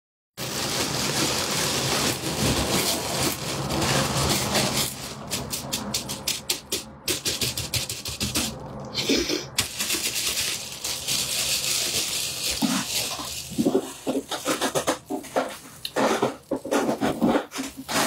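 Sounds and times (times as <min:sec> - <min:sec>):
plastic bag crinkling: 0:00.4 - 0:06.2, 0:09.6 - 0:18.0.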